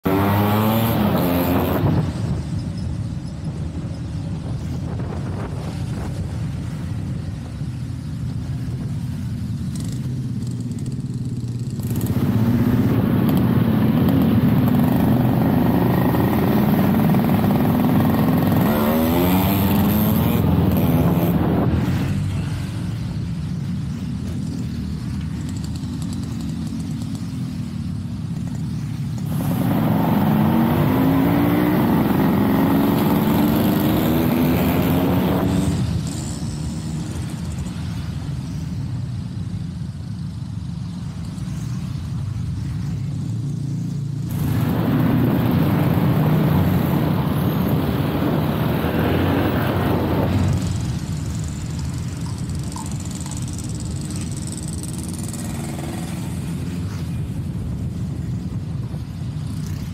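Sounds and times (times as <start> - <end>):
road and wind noise: 0.0 - 59.9
scooter engine running: 44.3 - 58.1.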